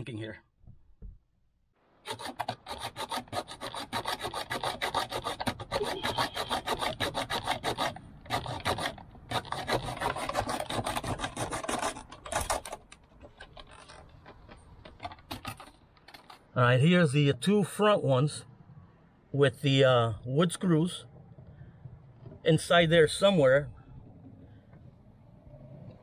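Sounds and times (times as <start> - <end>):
hacksaw sawing: 2.0 - 15.7.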